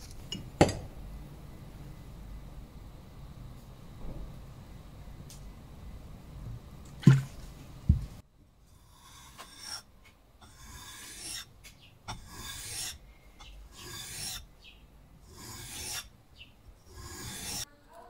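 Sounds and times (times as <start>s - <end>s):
blade rasping on whetstone: 8.8s - 11.5s, 12.1s - 13.0s, 13.7s - 14.5s, 15.3s - 16.1s, 16.8s - 17.7s.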